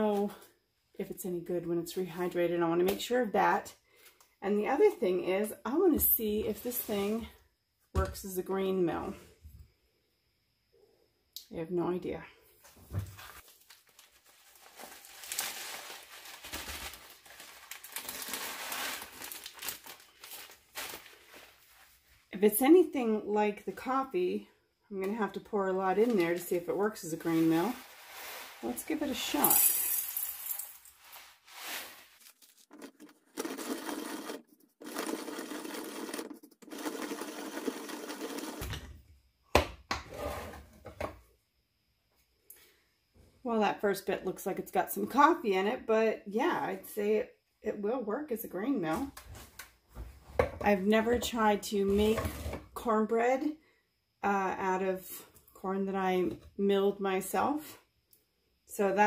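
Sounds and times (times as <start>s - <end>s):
plastic bag crinkling: 13.2s - 22.0s, 25.9s - 33.0s
kernels rattling into hopper: 27.4s - 31.1s
hand coffee grinder grinding: 32.6s - 38.7s.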